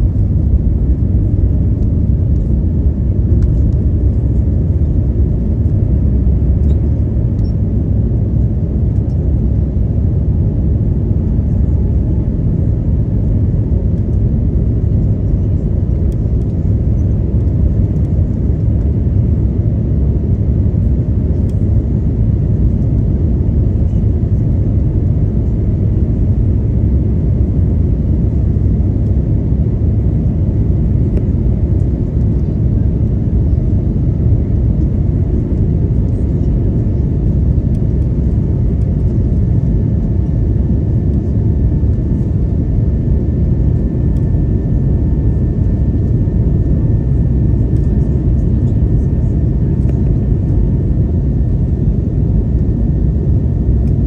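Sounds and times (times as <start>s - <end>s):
airplane cabin engine rumble: 0.0s - 54.0s.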